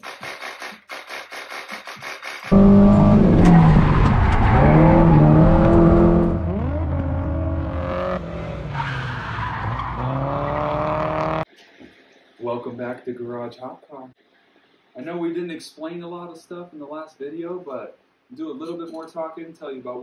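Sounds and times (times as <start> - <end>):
tyres screeching: 2.5 - 11.4
car engine revving high: 2.5 - 11.5.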